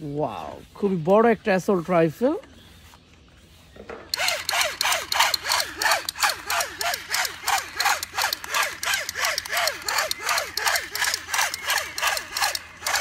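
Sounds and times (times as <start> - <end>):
toy gun electronic shots: 4.2 - 13.0.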